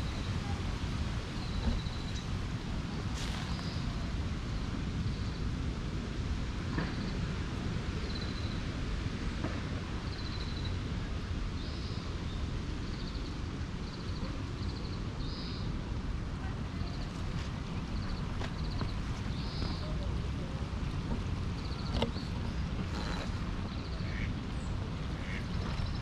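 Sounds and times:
wind rumble on microphone: 0.0s - 26.0s.

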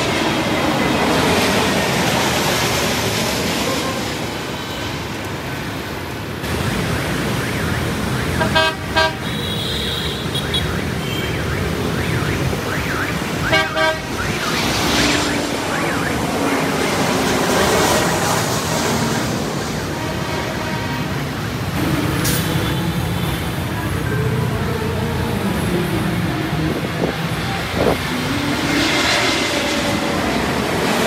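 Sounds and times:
jet engines overhead: 0.0s - 31.0s
road traffic noise: 0.0s - 31.0s
vehicle horn toots: 8.4s - 11.3s, 13.4s - 14.3s.

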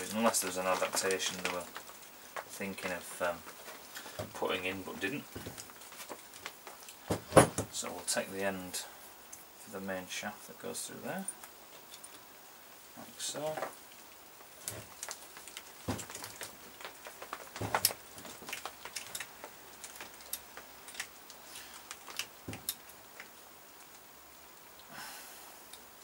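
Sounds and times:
metal parts clicking and knocking: 15.9s - 23.3s.

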